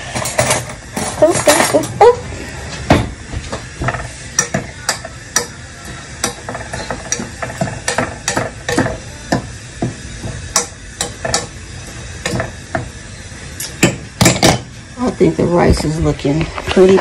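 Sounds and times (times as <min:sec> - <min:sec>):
spoon stirring rice in a pot: 0:03.8 - 0:13.0
spoon tapping against pot: 0:04.4 - 0:05.6, 0:06.2 - 0:11.5.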